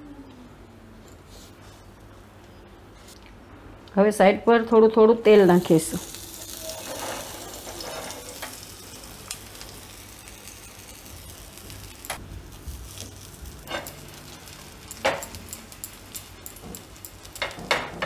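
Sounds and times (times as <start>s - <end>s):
oil sizzling on hot pan: 5.4s - 18.0s.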